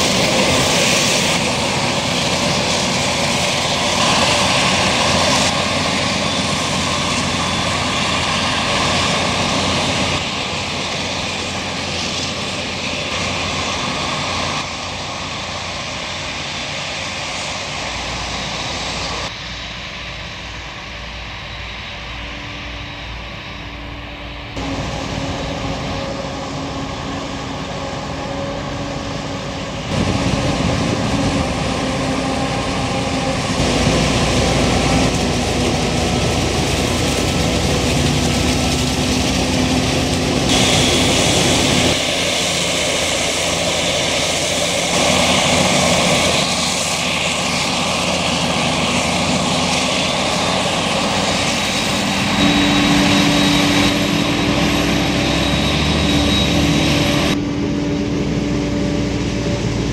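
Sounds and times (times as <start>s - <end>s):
tractor engine running: 24.6s - 59.9s.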